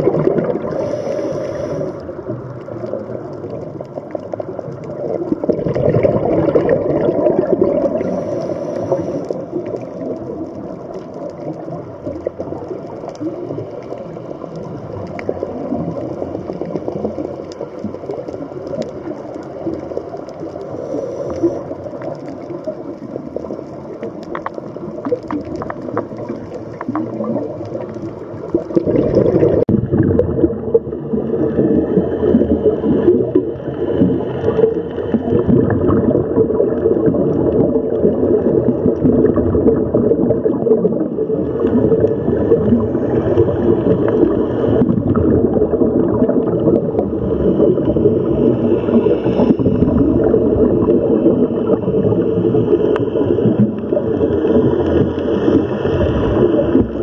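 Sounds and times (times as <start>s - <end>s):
underwater air bubbling: 0.0s - 57.0s
faint clicks: 8.8s - 28.8s.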